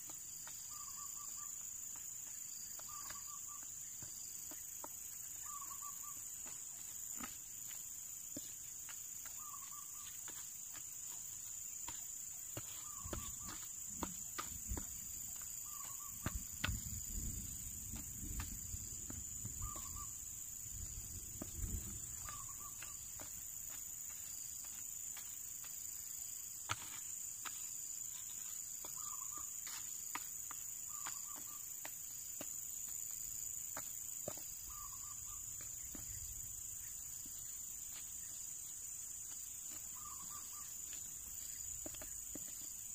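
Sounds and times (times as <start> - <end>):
stick scraping dry soil: 6.4 - 38.5, 39.2 - 42.9
high-pitched insect drone: 9.2 - 26.9.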